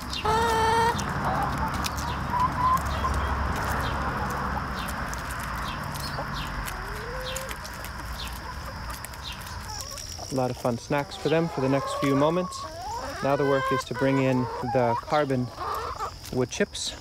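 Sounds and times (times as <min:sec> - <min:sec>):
hens clucking: 0:00.0 - 0:17.0
hen calls: 0:10.9 - 0:16.2.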